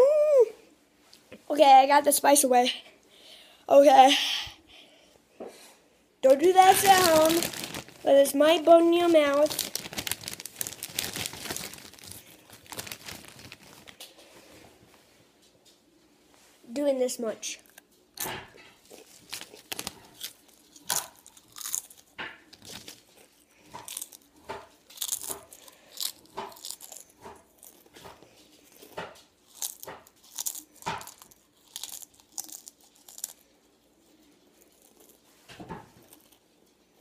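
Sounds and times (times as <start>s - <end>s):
chips crunching: 6.2s - 14.0s, 17.6s - 35.3s, 35.9s - 36.5s.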